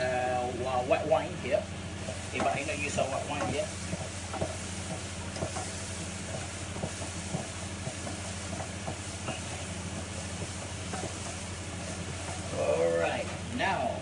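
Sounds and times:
onion and garlic sizzling in oil: 0:00.0 - 0:14.0
wooden spoon scraping a pan: 0:02.0 - 0:12.6.

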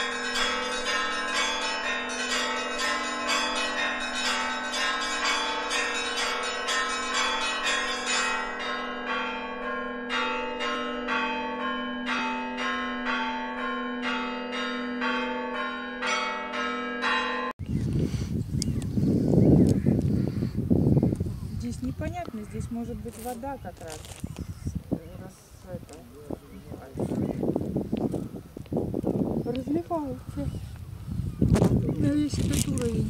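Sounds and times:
church bells ringing: 0:00.0 - 0:17.6
large bell humming: 0:00.0 - 0:17.6.

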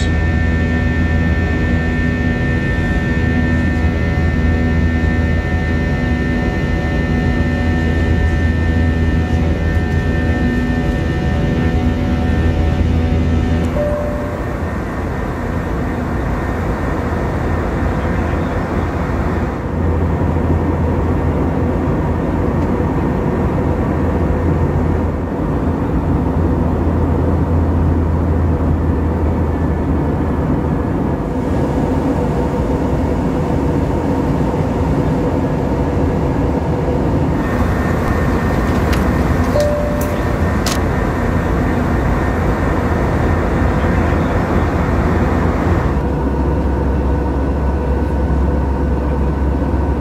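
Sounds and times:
low engine drone: 0:00.0 - 0:50.0
rush of air in cabin: 0:37.4 - 0:46.1.

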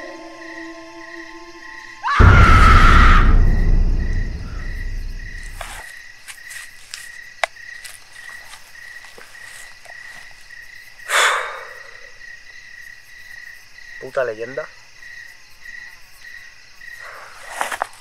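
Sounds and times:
crickets trilling: 0:00.0 - 0:18.0
low rumble: 0:02.2 - 0:05.8.

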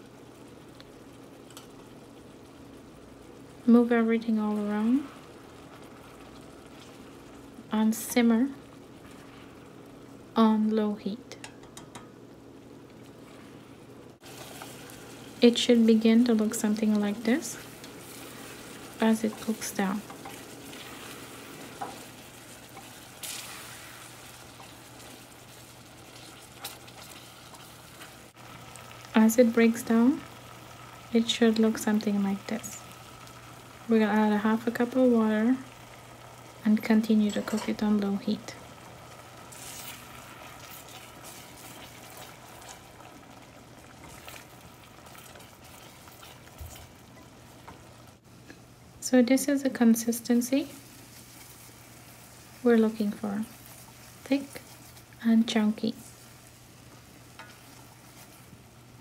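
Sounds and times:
faint steady hum: 0:00.0 - 0:59.0
jam bubbling and sizzling: 0:00.0 - 0:59.0
wooden spoon stirring: 0:16.8 - 0:28.3, 0:43.8 - 0:47.8.

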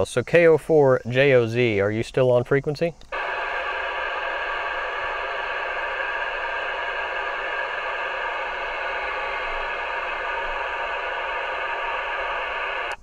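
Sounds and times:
radio static hissing: 0:03.0 - 0:13.0.

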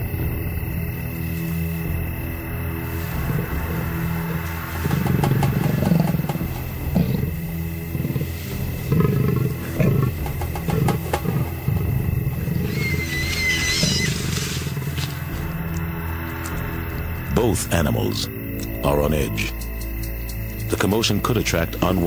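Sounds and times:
animals growling and snarling: 0:01.9 - 0:20.9.

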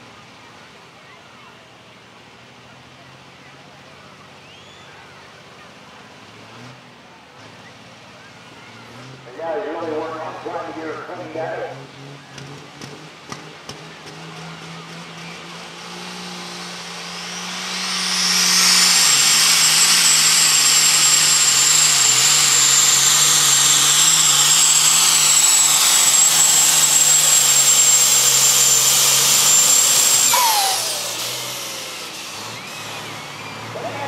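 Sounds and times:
diesel engine at full throttle: 0:00.0 - 0:34.0
turbo whine: 0:09.3 - 0:12.6, 0:14.8 - 0:34.0.

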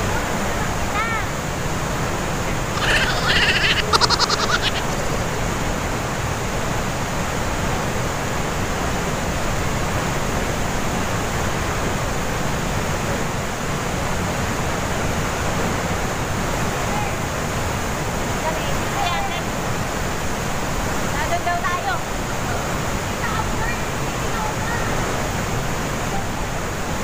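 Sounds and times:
waterfall roaring: 0:00.0 - 0:27.0
high-pitched call: 0:02.8 - 0:05.3.

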